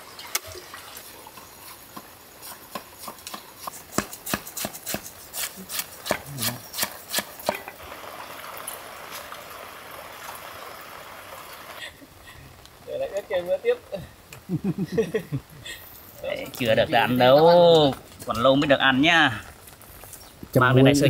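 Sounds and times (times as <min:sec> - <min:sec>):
sharp chopping strikes: 0:03.0 - 0:05.1.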